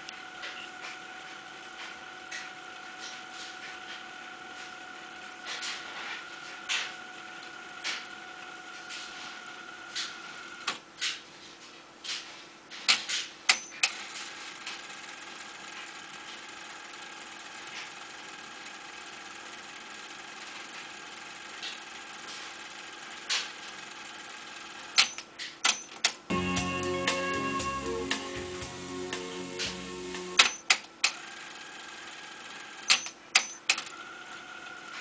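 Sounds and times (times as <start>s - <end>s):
hi-fi controls clicking: 25.0s - 31.2s.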